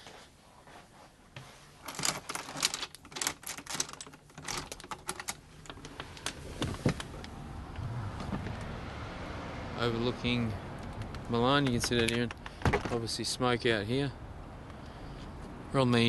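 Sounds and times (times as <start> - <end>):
outdoor city noise: 0.0 - 16.0
door handle and latch rattling: 1.9 - 7.2, 10.9 - 13.0.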